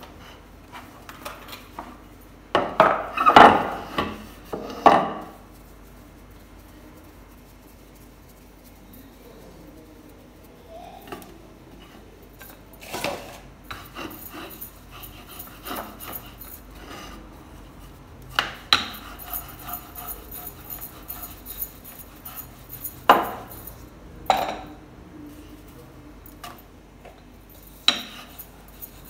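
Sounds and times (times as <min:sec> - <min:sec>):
dough rolling on wooden board: 0:13.7 - 0:23.8
metal bangles clinking: 0:13.8 - 0:16.8, 0:18.9 - 0:24.0, 0:27.4 - 0:29.0.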